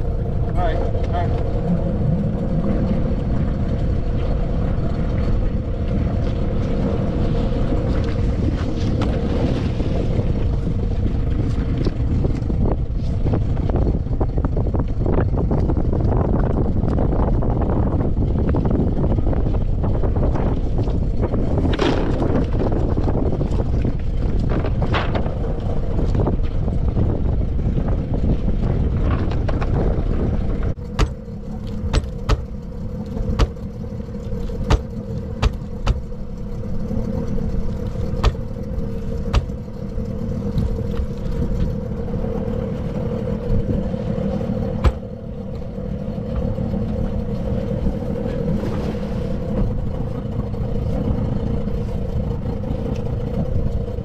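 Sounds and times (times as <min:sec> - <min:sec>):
boat motor idling: 0:00.0 - 0:54.0
wind rumble on microphone: 0:00.0 - 0:54.0
sharp knocks: 0:30.9 - 0:31.2, 0:31.9 - 0:32.5, 0:33.4 - 0:33.6, 0:34.7 - 0:36.1, 0:38.2 - 0:38.5, 0:39.3 - 0:39.6.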